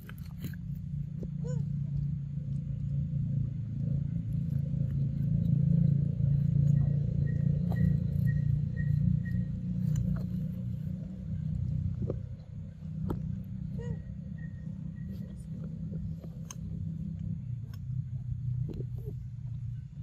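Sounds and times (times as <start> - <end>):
low rumble: 0.0 - 20.0
faint high chirp: 6.3 - 10.4, 13.7 - 16.0.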